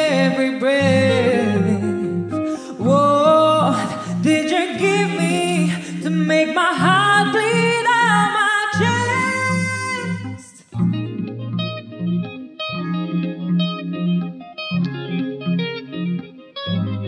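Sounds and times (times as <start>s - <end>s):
woman singing into a microphone: 0.0s - 10.8s
electric guitar: 0.0s - 17.0s.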